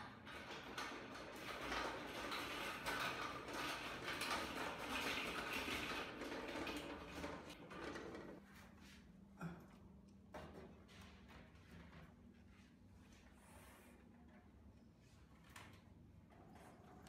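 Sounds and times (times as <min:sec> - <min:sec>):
trolley wheels rattling on tiled floor: 0:00.0 - 0:08.4.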